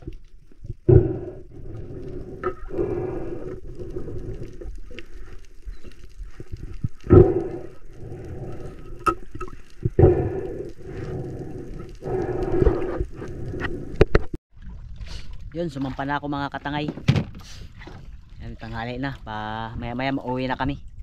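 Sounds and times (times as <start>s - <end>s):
muffled underwater water noise: 0.0s - 21.0s.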